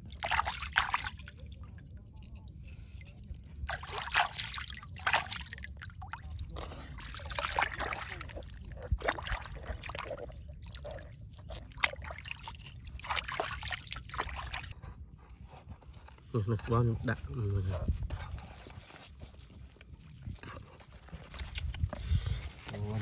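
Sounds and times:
water splashing and sloshing: 0.0 - 14.8.

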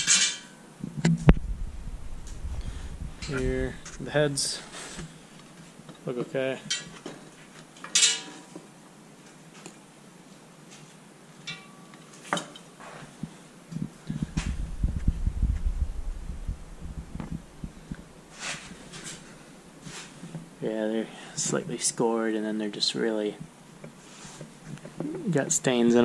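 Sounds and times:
metal part set down with clink: 0.0 - 0.6, 7.8 - 8.4
low handling rumble: 0.8 - 4.6, 14.1 - 18.0.

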